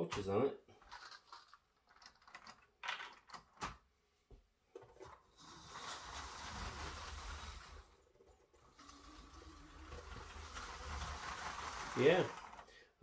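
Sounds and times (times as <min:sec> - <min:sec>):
wheels rattling on plastic track: 0:00.8 - 0:03.8, 0:05.0 - 0:12.9
toy train motor hum: 0:05.3 - 0:12.7.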